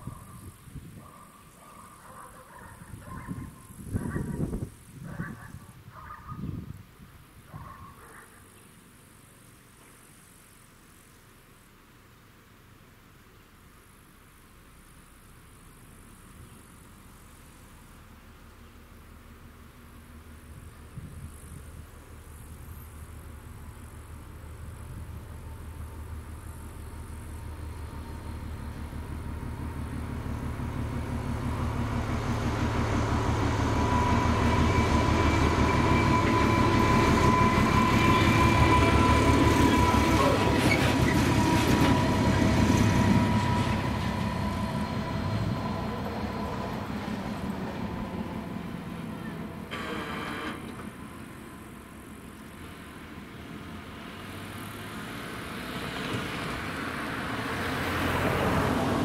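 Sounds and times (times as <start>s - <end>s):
freight train rumble: 0.0s - 9.2s, 15.3s - 54.7s, 55.4s - 59.0s
steady high whine: 20.5s - 53.0s.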